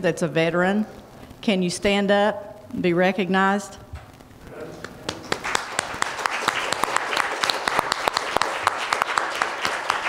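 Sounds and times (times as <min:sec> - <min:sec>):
crowd applauding: 0:04.6 - 0:10.0.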